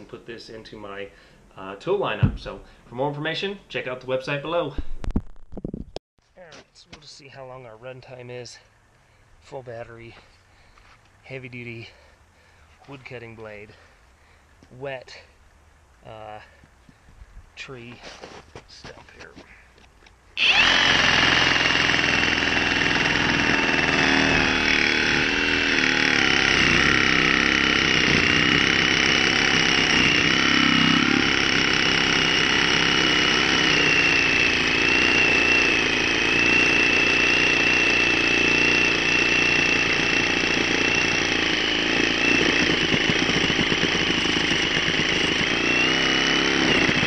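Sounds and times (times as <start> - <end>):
reciprocating saw cutting wood: 20.4 - 47.0.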